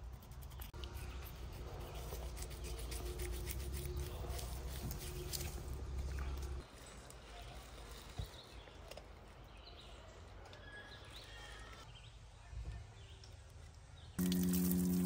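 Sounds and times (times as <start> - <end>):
shower spraying water over hands: 14.2 - 15.0
steady low hum: 14.2 - 15.0.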